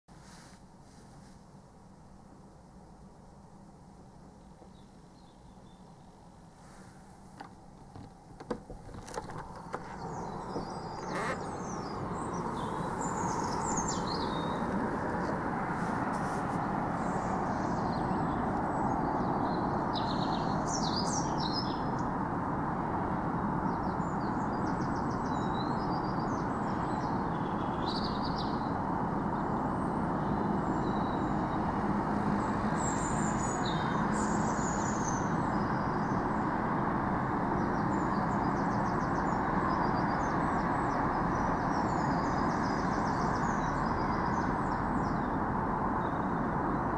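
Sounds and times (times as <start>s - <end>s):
low rumbling noise: 0.8s - 27.7s
small birds chirping: 4.3s - 22.2s, 23.5s - 36.6s, 37.5s - 46.9s.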